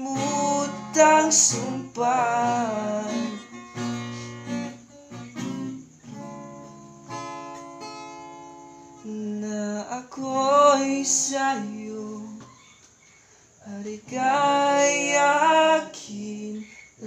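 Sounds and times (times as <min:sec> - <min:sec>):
acoustic guitar strumming chords: 0:00.0 - 0:12.7.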